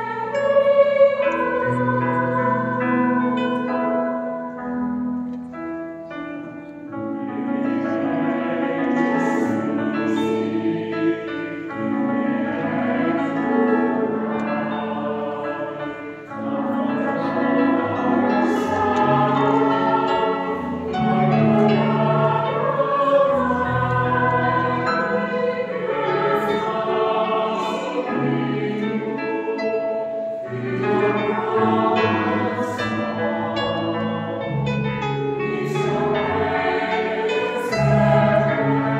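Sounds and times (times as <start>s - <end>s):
choir singing a carol: 0.0s - 38.9s.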